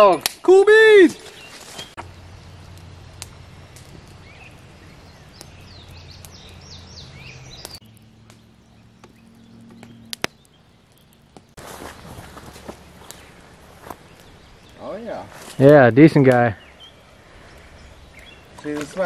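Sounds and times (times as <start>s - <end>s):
bird chirps: 1.0s - 15.7s, 16.4s - 19.0s
sharp clicks: 9.0s - 11.6s.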